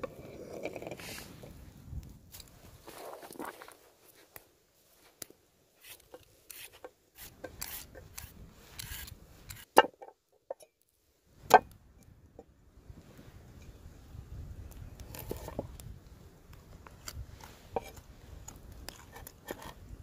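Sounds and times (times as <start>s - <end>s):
carrot peeler scraping: 5.8s - 9.7s.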